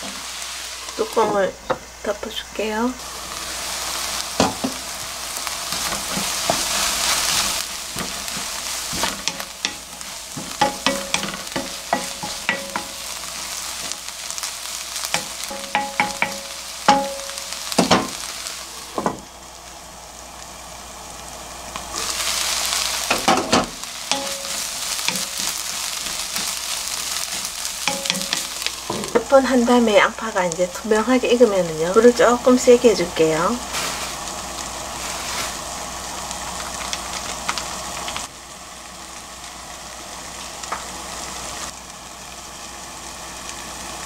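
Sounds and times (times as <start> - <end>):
onions sizzling in a pan: 0.0 - 44.0
spatula knocking and scraping pan: 4.4 - 4.8, 5.7 - 13.1, 15.2 - 18.2, 23.1 - 29.3.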